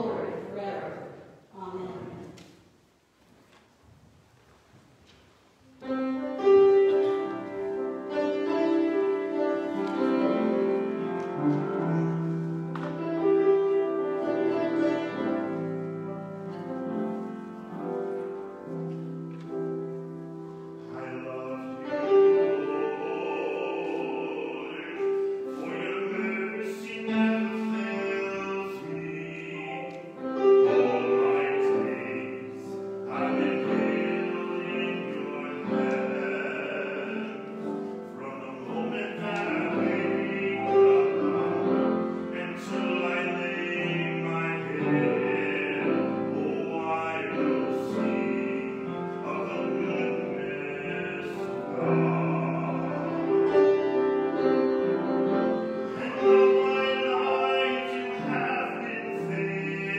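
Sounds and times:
instrumental accompaniment: 0:05.8 - 0:59.9
man singing operatically: 0:20.7 - 0:54.4, 0:55.8 - 0:59.9.

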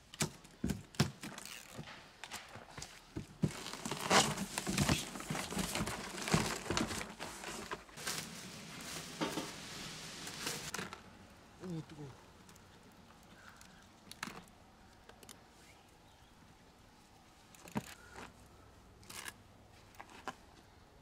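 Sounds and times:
cardboard crinkling and tearing: 0:03.2 - 0:09.5.

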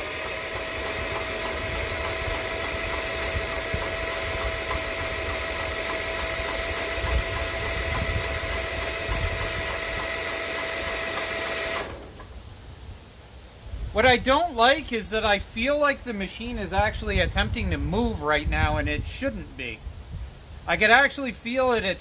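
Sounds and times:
electric starter cranking engine: 0:00.0 - 0:12.4.

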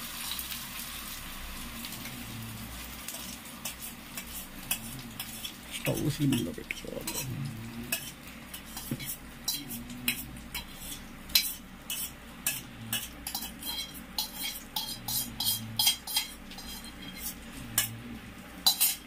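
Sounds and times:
metal cookware clinking and scraping: 0:03.1 - 0:07.3, 0:07.9 - 0:18.0, 0:18.6 - 0:19.0.

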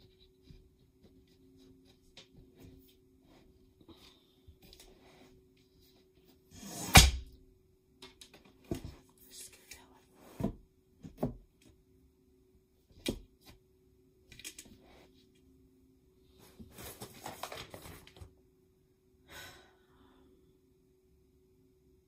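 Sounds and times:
paper sheet rustling: 0:16.4 - 0:18.3.

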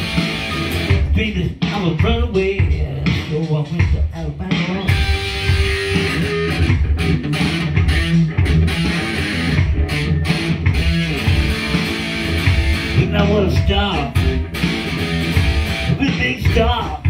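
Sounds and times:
electric guitar through amplifier: 0:00.0 - 0:01.3, 0:04.9 - 0:16.8.

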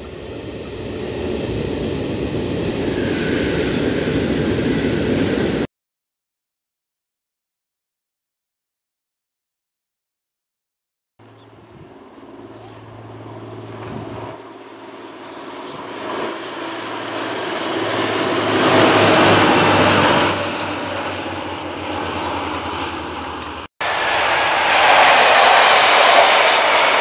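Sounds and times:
another train: 0:00.0 - 0:05.7, 0:11.2 - 0:27.0
diesel train passing: 0:00.0 - 0:05.7, 0:11.2 - 0:27.0
high whine: 0:11.2 - 0:27.0
wheels rushing on rails: 0:11.3 - 0:27.0.

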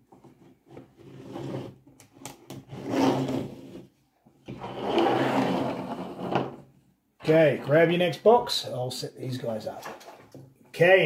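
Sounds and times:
toy pieces scraping on tabletop: 0:02.6 - 0:03.9, 0:04.6 - 0:06.6.

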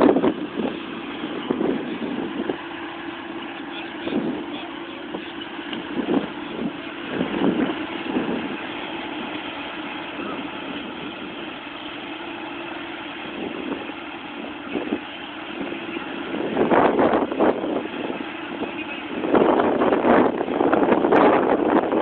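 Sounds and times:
bursts of louder rumbling: 0:00.0 - 0:22.0
vehicle engine idling: 0:00.0 - 0:22.0.

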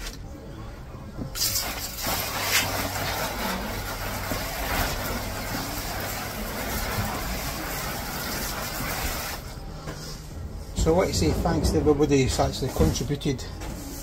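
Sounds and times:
hose water spraying: 0:01.4 - 0:09.6.

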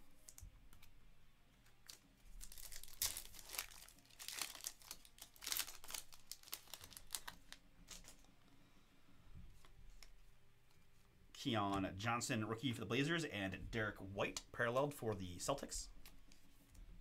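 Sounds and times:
faint handling of cards: 0:00.0 - 0:12.0, 0:13.5 - 0:17.0
foil wrapper crinkling and tearing: 0:01.7 - 0:08.3.

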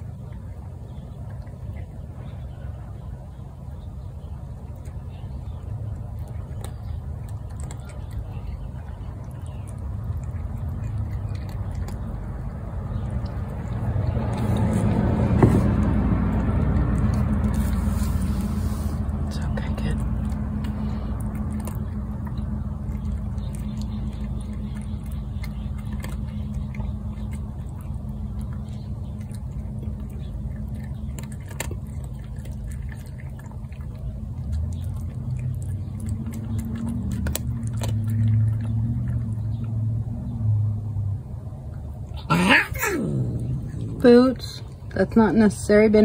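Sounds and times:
cat growling low: 0:42.2 - 0:44.8.

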